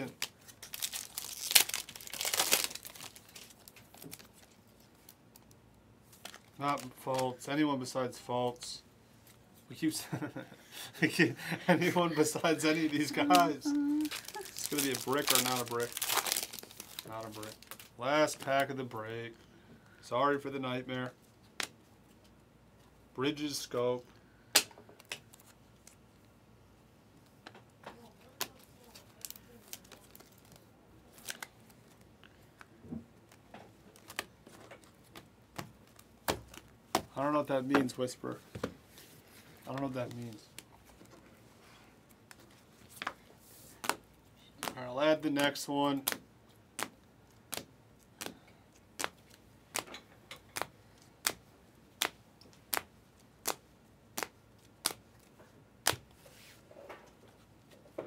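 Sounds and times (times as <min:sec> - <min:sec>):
trading cards clicking and rustling: 0:13.0 - 0:17.9.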